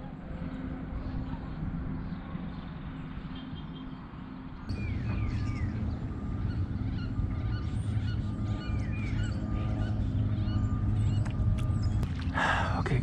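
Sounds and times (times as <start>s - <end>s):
low rumble: 4.7s - 13.0s.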